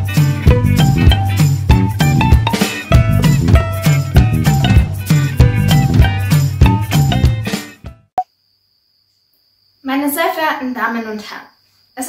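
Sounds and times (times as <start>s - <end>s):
intro music with drums: 0.0s - 8.0s.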